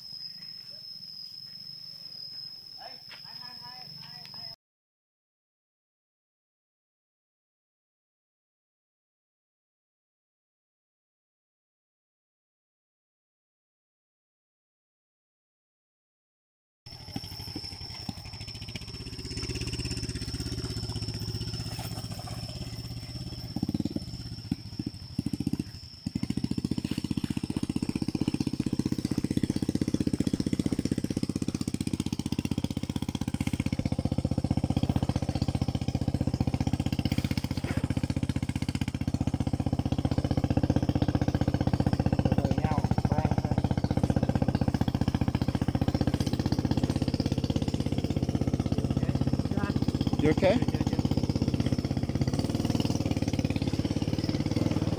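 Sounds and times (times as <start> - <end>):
dirt bike engine running: 16.9 - 54.9.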